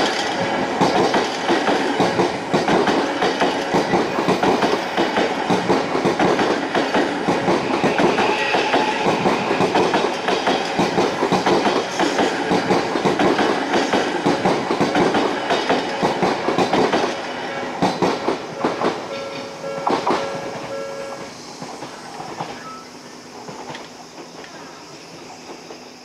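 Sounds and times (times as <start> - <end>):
train wheels clattering over rail joints: 0.0 - 22.6
level crossing warning bell: 19.1 - 21.2.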